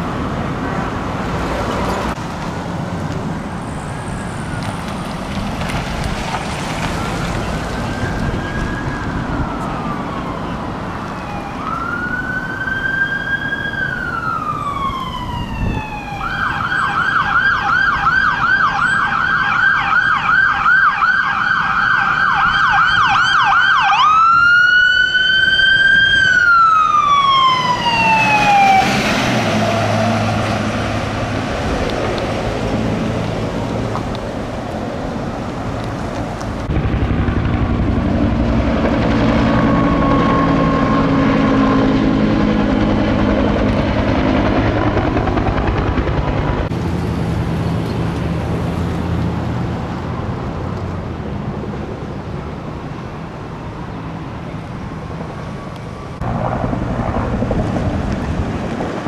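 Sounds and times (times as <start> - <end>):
traffic noise: 0.0 - 59.0
siren wailing and yelping: 7.0 - 30.2, 38.8 - 42.0.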